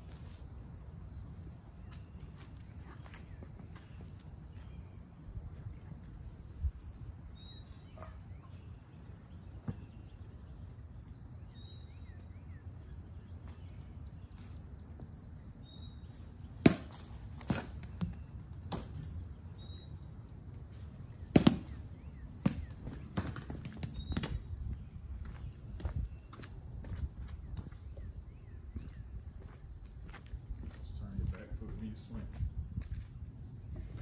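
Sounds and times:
birds chirping: 0:00.0 - 0:34.0
bat hitting balls: 0:16.6 - 0:19.1, 0:21.3 - 0:21.8.

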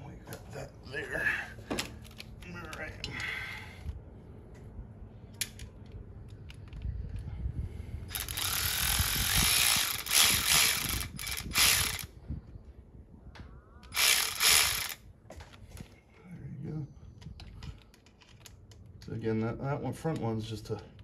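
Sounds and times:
hand ratchet clicking: 0:08.1 - 0:12.1, 0:13.9 - 0:15.0.

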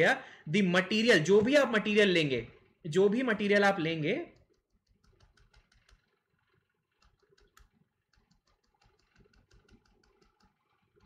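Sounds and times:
typing on a keyboard: 0:04.3 - 0:11.0.

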